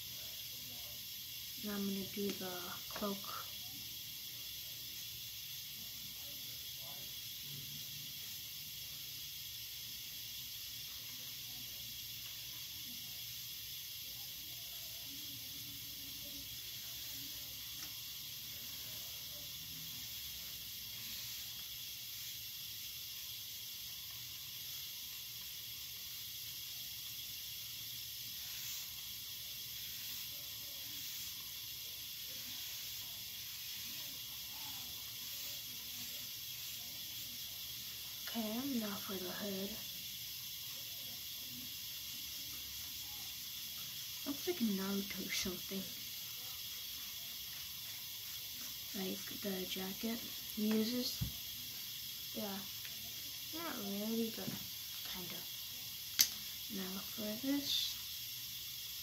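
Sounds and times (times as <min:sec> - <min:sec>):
background hiss: 0:00.0 - 0:59.0
marker scratching on paper: 0:20.0 - 0:22.3, 0:28.3 - 0:31.5, 0:32.3 - 0:33.9.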